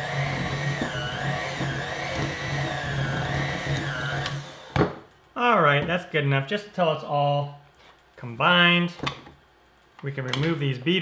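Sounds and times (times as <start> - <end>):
electric hand mixer whining: 0.0 - 4.9.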